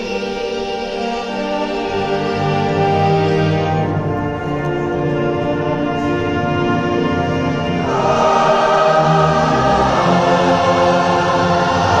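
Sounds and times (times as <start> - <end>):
orchestra and wind ensemble: 0.0 - 12.0
choirs singing held notes: 7.5 - 12.0.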